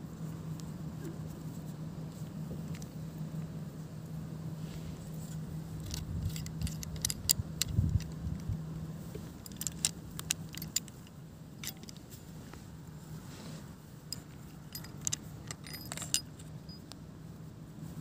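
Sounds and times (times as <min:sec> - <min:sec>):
steady low hum: 0:00.0 - 0:18.0
metal hinge clicks and clinks: 0:05.8 - 0:08.6, 0:09.4 - 0:12.1, 0:14.1 - 0:17.0.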